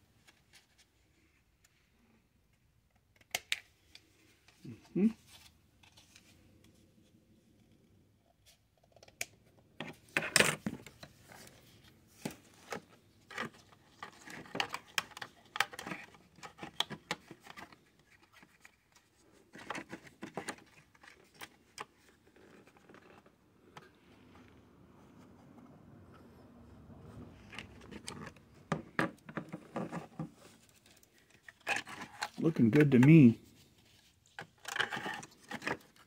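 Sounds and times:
plastic pieces clicking and scraping: 0:12.2 - 0:23.9, 0:27.4 - 0:33.3, 0:34.2 - 0:36.0.

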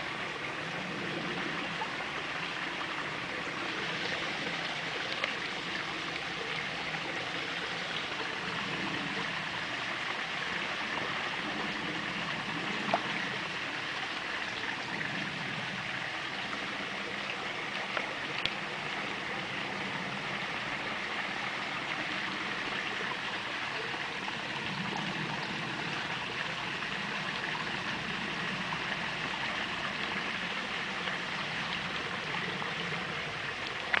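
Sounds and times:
trickling water: 0:00.0 - 0:34.0
small clicks or splashes: 0:04.8 - 0:05.7, 0:17.8 - 0:18.7, 0:33.5 - 0:34.0.

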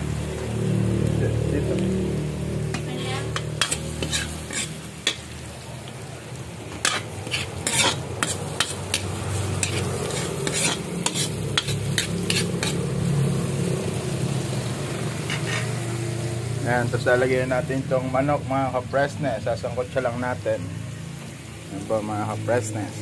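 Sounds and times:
food sizzling in oil: 0:00.0 - 0:23.0
metal spatula scraping a pan: 0:02.7 - 0:05.4, 0:06.7 - 0:12.9, 0:15.2 - 0:15.9.

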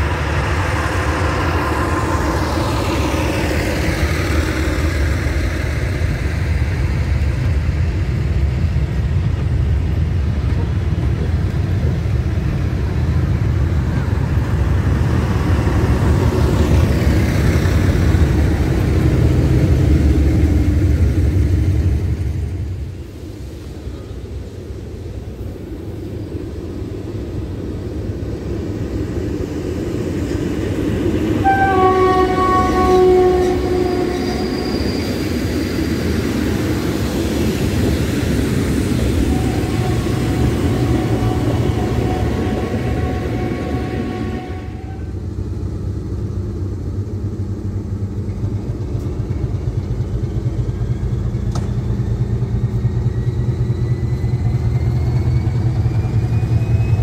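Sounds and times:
diesel locomotive engine whine: 0:00.0 - 0:57.0
train passing rumbling: 0:00.0 - 0:57.0
locomotive horn: 0:31.4 - 0:34.8, 0:39.3 - 0:45.2.

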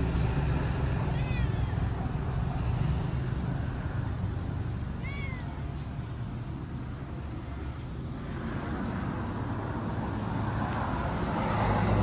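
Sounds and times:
cat meowing: 0:00.9 - 0:02.2, 0:05.0 - 0:05.8.

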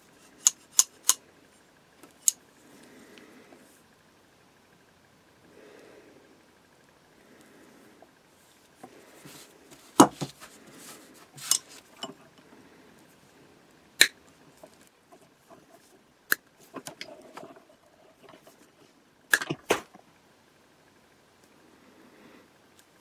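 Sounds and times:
pliers snipping wire: 0:00.3 - 0:01.2
light handling noise: 0:08.6 - 0:12.6.

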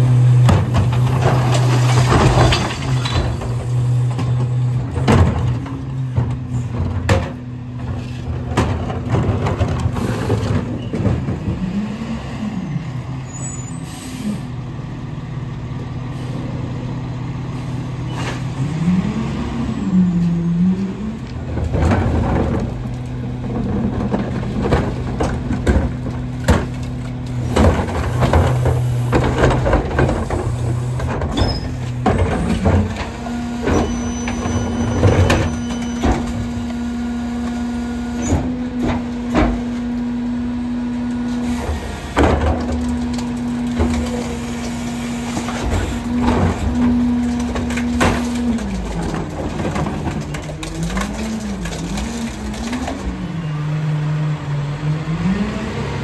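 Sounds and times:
trash clattering into truck: 0:00.0 - 0:11.9, 0:21.3 - 0:53.8
garbage truck packer whine: 0:00.0 - 0:56.0
carts banging against hopper: 0:21.4 - 0:40.0, 0:41.4 - 0:53.2.

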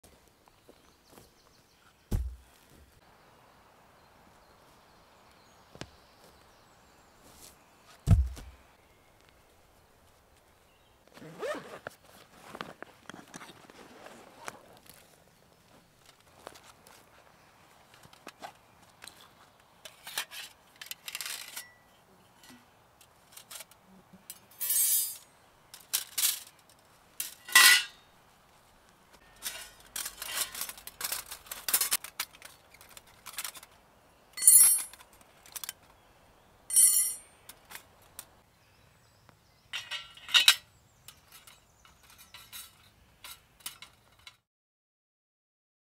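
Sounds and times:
metal plates clinking and scraping: 0:19.9 - 0:21.8, 0:23.3 - 0:26.6, 0:27.2 - 0:28.0, 0:29.2 - 0:33.7, 0:34.4 - 0:35.7, 0:36.7 - 0:37.3, 0:39.8 - 0:44.4.

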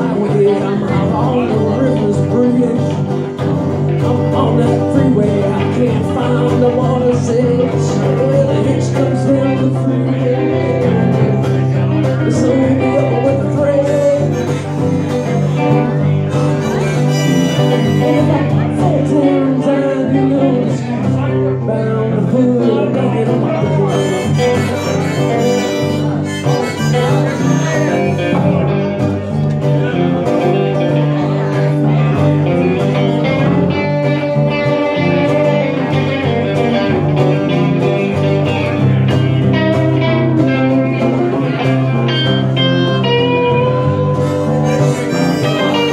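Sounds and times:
electric guitar: 0:00.0 - 0:45.9
strummed acoustic guitar: 0:00.0 - 0:45.9
harmonica: 0:13.2 - 0:18.6, 0:23.6 - 0:28.7, 0:42.1 - 0:45.9.

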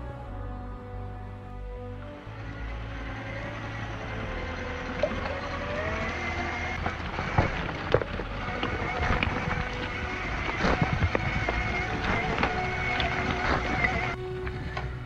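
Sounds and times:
electric motor and gear whine: 0:02.0 - 0:15.0
tyres clattering over rocks: 0:04.8 - 0:14.2.

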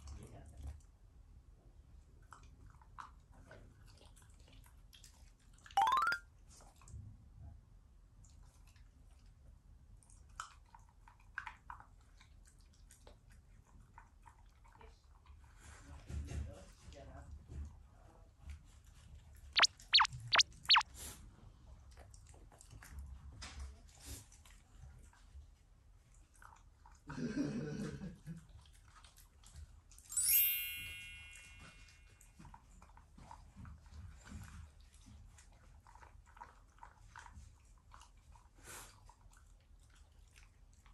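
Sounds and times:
bright chime: 0:30.1 - 0:32.1.

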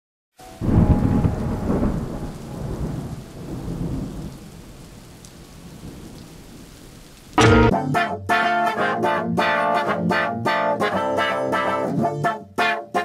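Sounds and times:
rain hissing: 0:00.4 - 0:07.7
thunder rumbling: 0:00.6 - 0:06.8.

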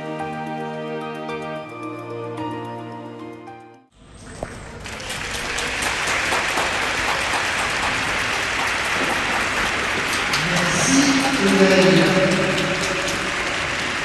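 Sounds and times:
music: 0:00.0 - 0:03.9
audience clapping: 0:04.2 - 0:14.0.

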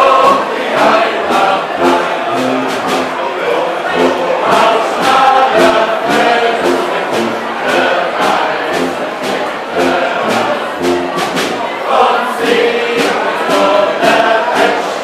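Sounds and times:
evenly spaced strikes: 0:00.0 - 0:15.0
group voices singing: 0:00.0 - 0:15.0.

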